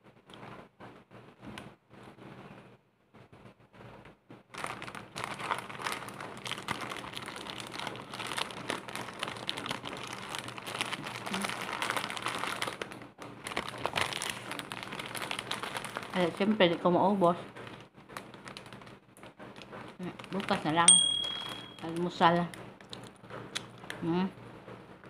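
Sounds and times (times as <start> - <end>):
plastic packet crinkling: 4.5 - 16.8, 17.5 - 22.1.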